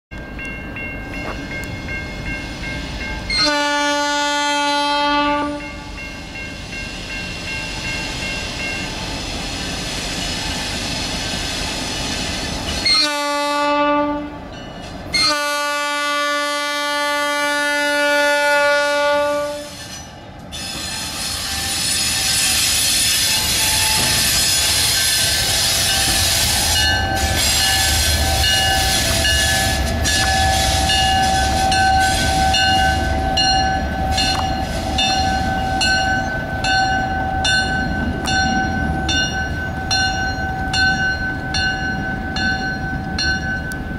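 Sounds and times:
diesel locomotive rumbling: 0.1 - 43.9
locomotive air horn blasts: 3.3 - 6.0, 12.8 - 14.4, 15.1 - 19.8, 20.9 - 36.0.

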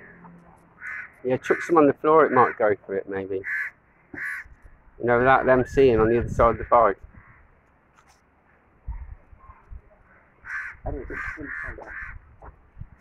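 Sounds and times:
crow cawing: 0.0 - 2.8, 3.4 - 4.7, 6.5 - 7.6, 10.0 - 12.3.

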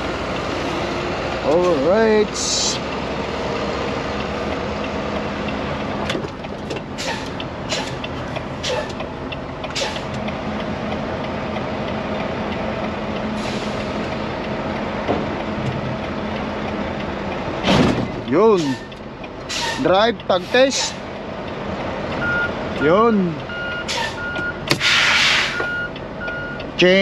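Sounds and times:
truck engine running: 0.0 - 27.0
air brake hisses: 13.4 - 14.0, 19.5 - 19.8, 23.9 - 24.2, 24.8 - 25.7.

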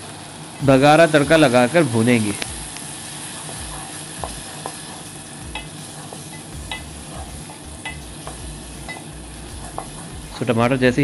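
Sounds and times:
tomatoes sizzling in ghee: 0.0 - 11.0
spatula scraping metal pot: 3.3 - 10.5.

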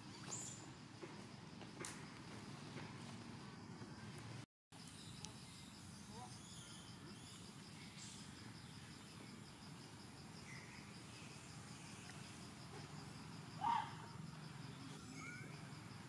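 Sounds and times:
pulsing insect trill: 4.8 - 16.0
faint chirps: 10.4 - 16.0.

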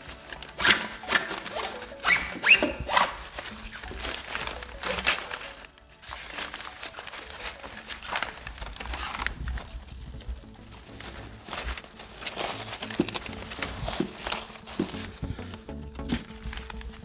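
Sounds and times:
background music: 0.0 - 17.0
mesh fabric rustling: 0.0 - 17.0.

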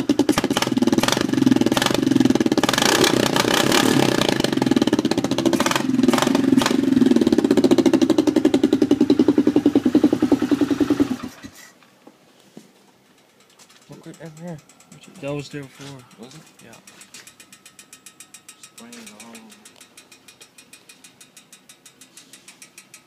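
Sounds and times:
atv engine revving: 0.0 - 11.7.

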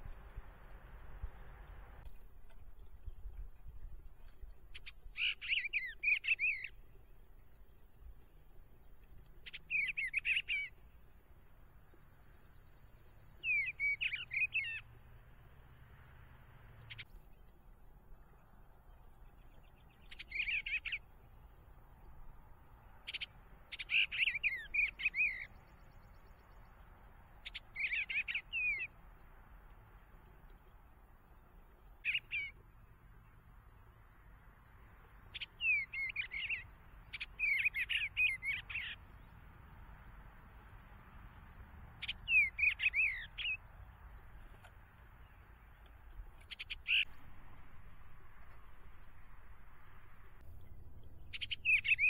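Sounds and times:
bird singing warbled phrases: 1.4 - 15.1, 16.8 - 29.0, 29.9 - 34.2, 34.8 - 39.4, 42.0 - 52.0
bird warbling: 42.0 - 43.6, 46.4 - 47.3, 51.2 - 52.0.

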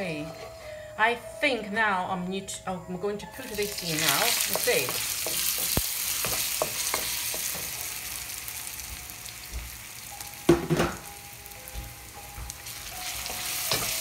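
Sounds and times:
food sizzling in hot oil: 3.3 - 14.0.

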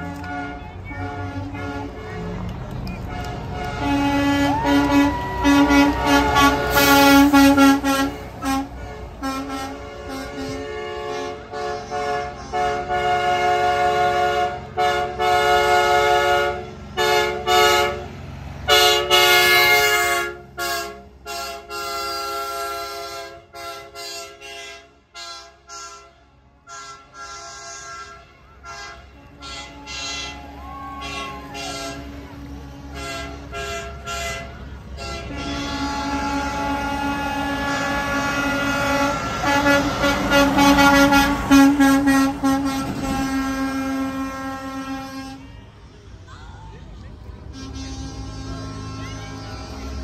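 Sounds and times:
truck air horns blasting: 0.0 - 45.7, 47.4 - 50.0
wail rising and falling: 4.2 - 6.9, 29.8 - 32.0.

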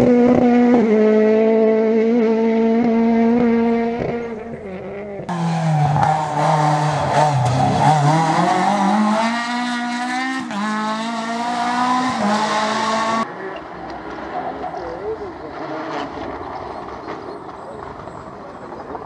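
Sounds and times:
rally car engine revving: 0.0 - 19.0.

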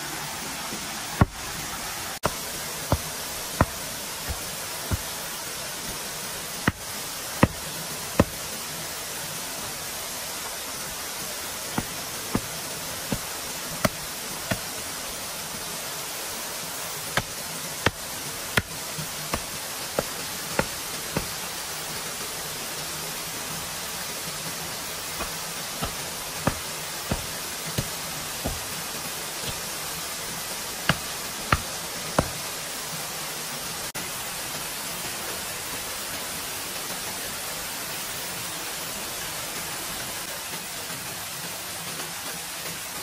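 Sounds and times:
steady hiss: 0.0 - 43.0
sharp knocks: 6.7 - 7.6.

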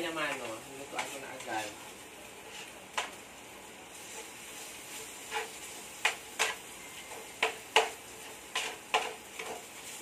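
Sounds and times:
meat sizzling in a pan: 0.0 - 10.0
spatula knocking against pan: 7.4 - 8.0.

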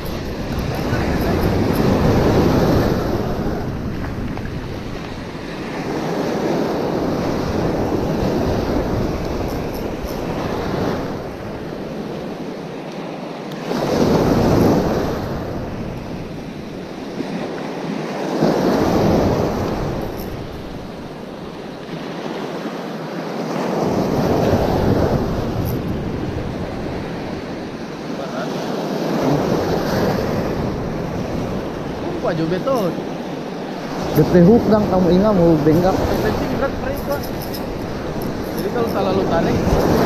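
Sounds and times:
wind rumbling on microphone: 0.0 - 12.6, 23.5 - 28.2, 28.8 - 40.0
ocean surf breaking: 0.0 - 40.0.

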